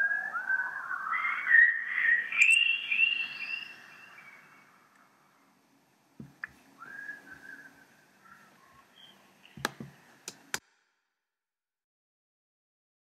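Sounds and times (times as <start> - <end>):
soft whistling: 0.0 - 4.7, 6.7 - 9.2
sharp clicks and knocks: 9.6 - 10.6.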